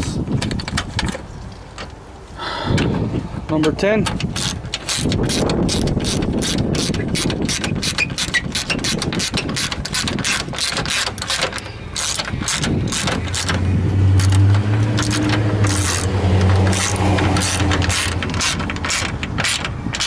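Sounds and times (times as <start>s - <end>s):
socket ratchet clicking: 4.1s - 13.6s, 14.2s - 20.0s.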